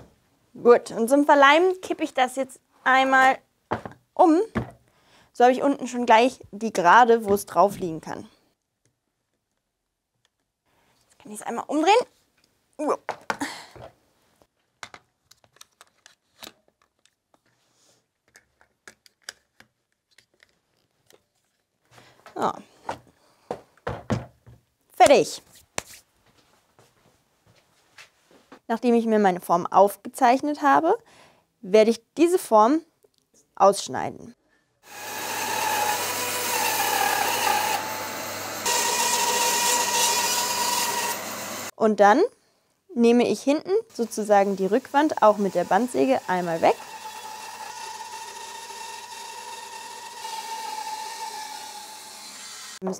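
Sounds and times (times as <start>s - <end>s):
bandsaw cutting wood: 34.8s - 41.7s, 44.0s - 52.8s.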